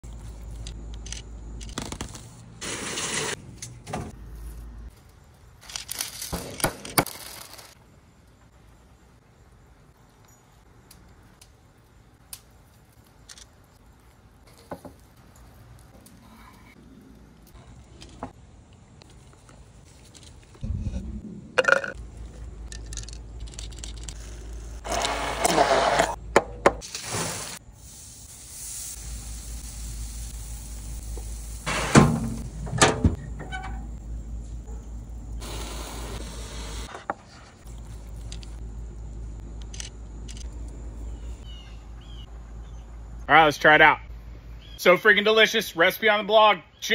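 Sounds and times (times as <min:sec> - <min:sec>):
rustling and crunching: 0:10.4 - 0:21.0.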